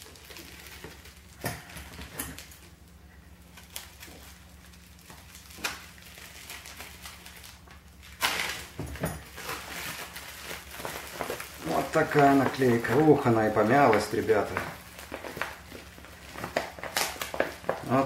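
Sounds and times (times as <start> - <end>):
low steady hum: 0.0 - 18.0
plastic crinkling: 0.0 - 18.0
plastic sleeve rustling and tapping: 8.8 - 18.0.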